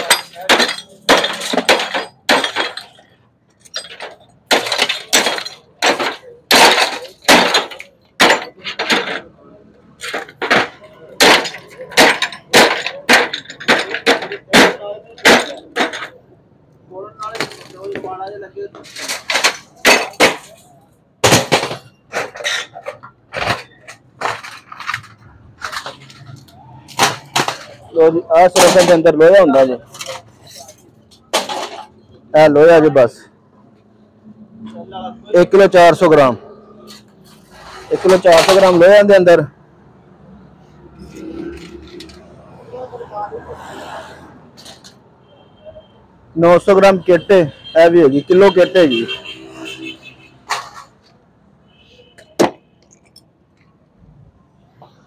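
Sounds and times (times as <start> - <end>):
hammer breaking glass: 0.0 - 3.1, 3.7 - 9.2, 10.0 - 16.1, 19.0 - 20.6, 21.2 - 22.7
glass shards crashing and clinking: 0.0 - 9.3, 10.0 - 16.2, 18.8 - 27.9, 28.5 - 32.0
hand tools clanking on metal: 0.0 - 16.2, 17.2 - 32.2, 36.8 - 39.1.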